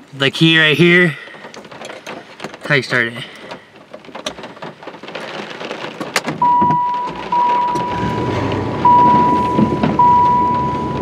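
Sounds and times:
truck engine cranking and idling: 6.2s - 11.0s
dashboard warning chime: 6.4s - 11.0s.

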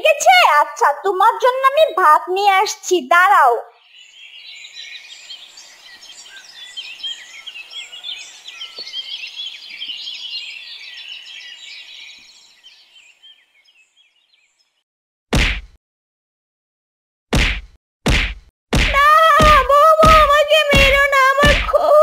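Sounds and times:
small birds chirping: 3.6s - 14.8s
wooden stick striking person: 15.4s - 15.8s, 17.4s - 20.3s.

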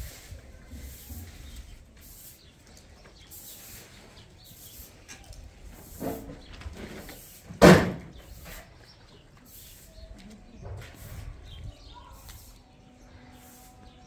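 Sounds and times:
loud thump: 7.6s - 8.2s.

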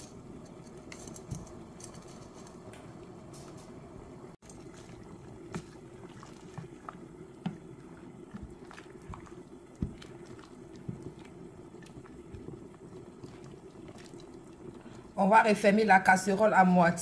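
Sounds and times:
water boiling in a pot: 0.0s - 17.0s.

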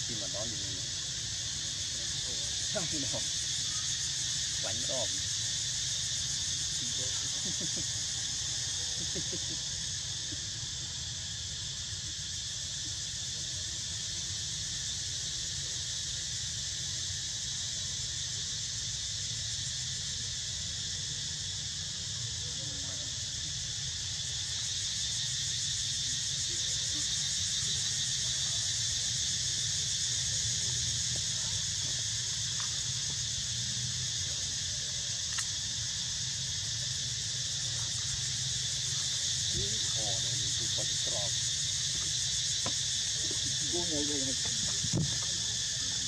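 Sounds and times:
insect chorus droning: 0.0s - 46.0s.

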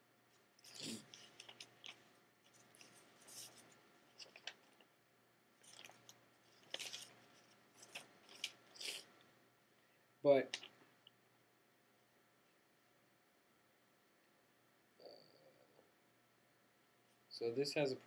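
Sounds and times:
faint handling rustles and clicks: 0.3s - 5.0s, 5.6s - 8.8s.

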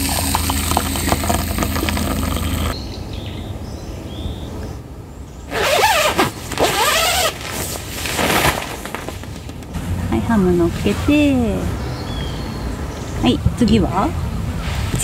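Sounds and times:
coffee pouring into a mug: 0.0s - 2.8s.

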